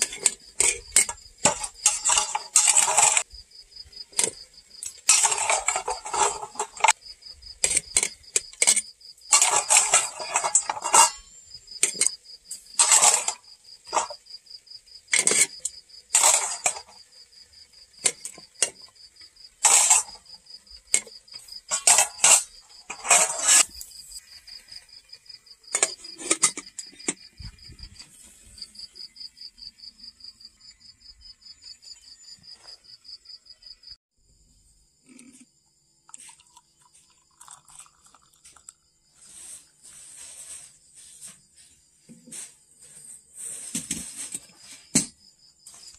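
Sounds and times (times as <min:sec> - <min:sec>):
insects chirping: 0:00.0 - 0:45.9
kettle boiling: 0:36.1 - 0:38.8.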